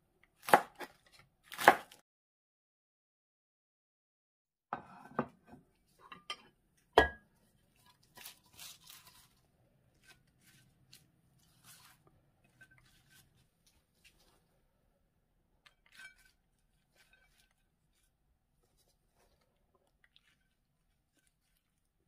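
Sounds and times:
lettuce leaves rustling: 0:07.7 - 0:14.5, 0:15.9 - 0:19.5, 0:20.1 - 0:21.9.

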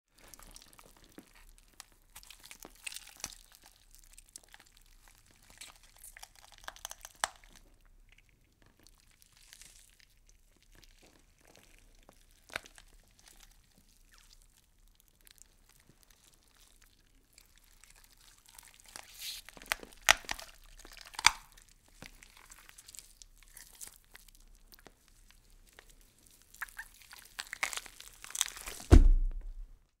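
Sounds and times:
wet meat crackles and clicks: 0:00.2 - 0:28.9
deep low thud: 0:28.8 - 0:29.8.

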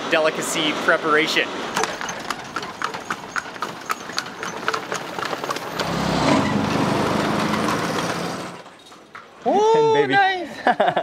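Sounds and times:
vehicle engine running: 0:01.8 - 0:08.6.

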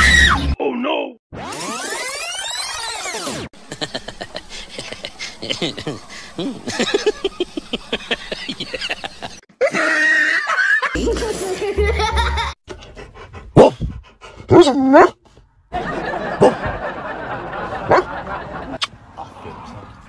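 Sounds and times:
child laughing hard: 0:08.1 - 0:12.6
dog vocalizing: 0:12.7 - 0:15.3.

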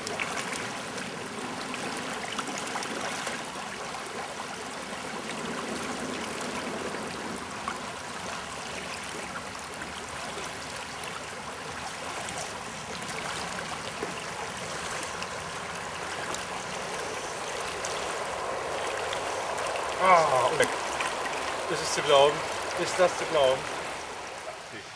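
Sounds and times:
river rushing over riffle: 0:00.0 - 0:24.9.

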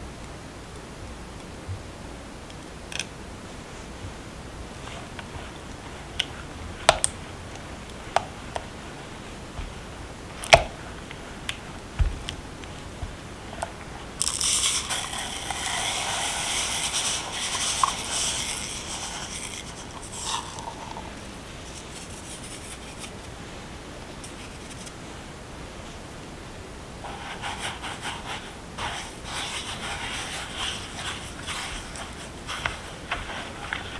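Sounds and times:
spatula scraping and swishing: 0:12.7 - 0:23.3, 0:27.0 - 0:33.9.

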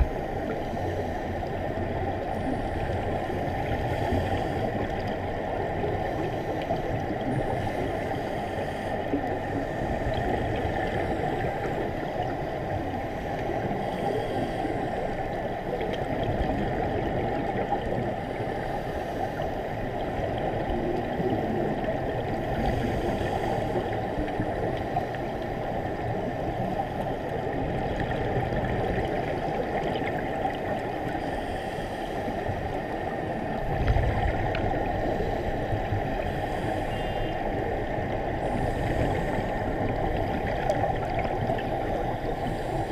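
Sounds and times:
muffled underwater rushing: 0:00.0 - 0:42.9.

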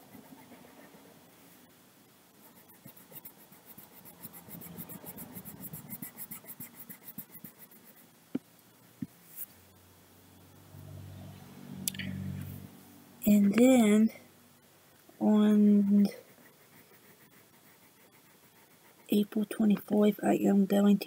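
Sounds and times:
colouring tool scratching paper: 0:00.0 - 0:01.1, 0:02.4 - 0:08.1, 0:15.8 - 0:19.3.

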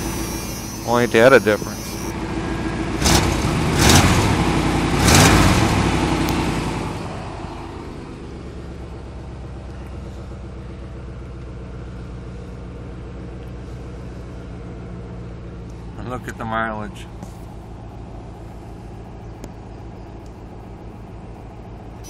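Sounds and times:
truck engine revving and idling: 0:00.0 - 0:22.0.

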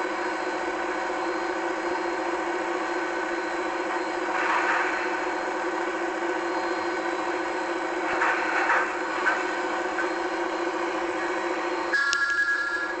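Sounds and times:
machine humming: 0:00.0 - 0:13.0
high-pitched tone: 0:11.9 - 0:13.0.

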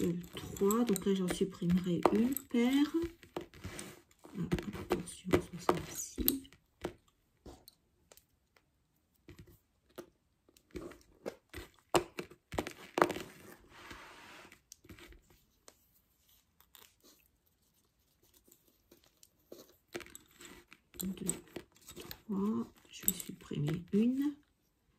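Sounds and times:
lace bobbins clacking: 0:00.0 - 0:13.5, 0:18.3 - 0:24.4
soft rustle: 0:12.6 - 0:24.9.

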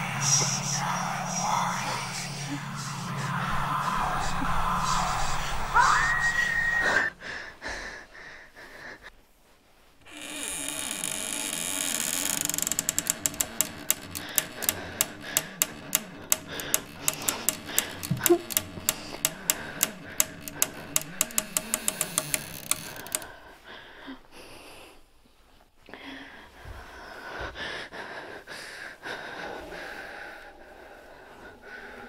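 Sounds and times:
low steady drone: 0:00.0 - 0:07.1
sharp clicking taps: 0:12.6 - 0:23.3.

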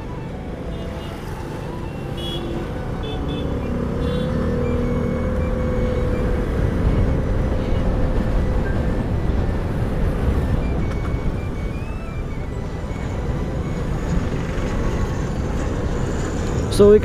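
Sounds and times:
scooter engine: 0:00.0 - 0:16.8
wind on microphone: 0:03.8 - 0:17.0.

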